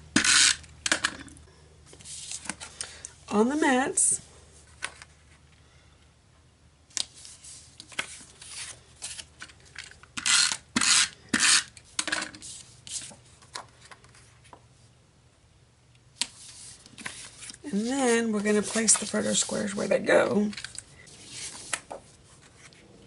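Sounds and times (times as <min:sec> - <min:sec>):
paper being handled and slid: 0:16.2 - 0:22.8.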